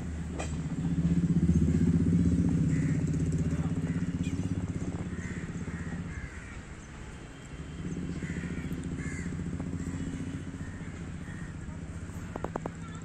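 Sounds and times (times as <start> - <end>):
low engine-like rumble: 0.0 - 13.0
crows cawing: 2.5 - 6.9, 8.1 - 11.7.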